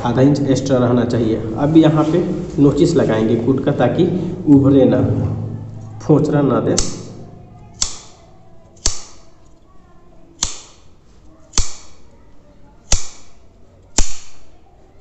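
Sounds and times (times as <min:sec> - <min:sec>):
shears snipping fabric: 0:10.4 - 0:10.8.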